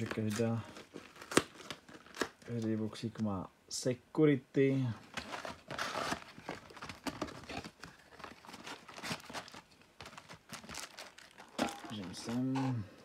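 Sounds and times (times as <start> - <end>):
plastic wrapping crackling: 5.1 - 12.7.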